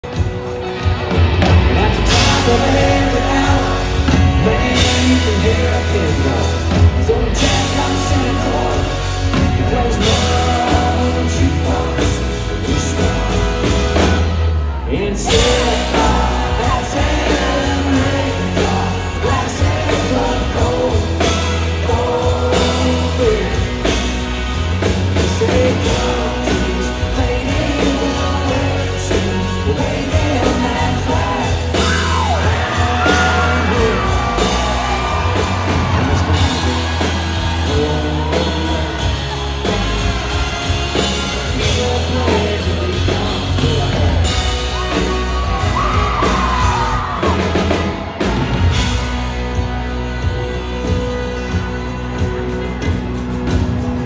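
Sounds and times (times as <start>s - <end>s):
live country rock band: 0.0s - 54.0s
crowd yelling and whooping: 0.1s - 54.0s.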